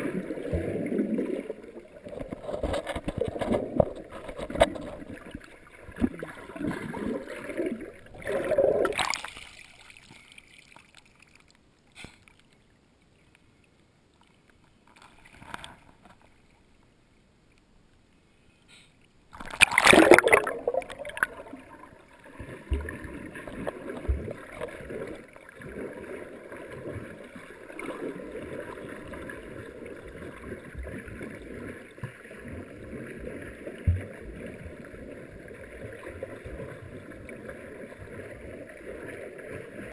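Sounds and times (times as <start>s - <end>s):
muffled underwater sloshing: 0.0s - 11.4s, 19.3s - 39.9s
sudden rush of water: 19.4s - 39.9s.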